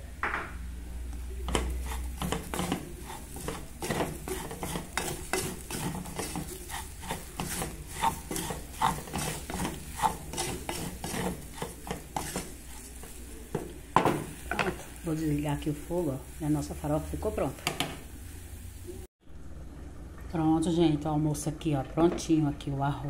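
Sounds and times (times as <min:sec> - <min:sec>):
stirring and scraping in metal pot: 0:01.4 - 0:15.2.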